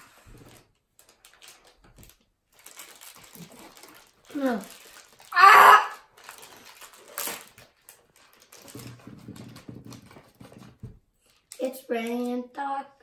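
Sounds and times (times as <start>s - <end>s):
plastic bag rustling: 0.0s - 12.2s
child shouting: 5.3s - 6.0s.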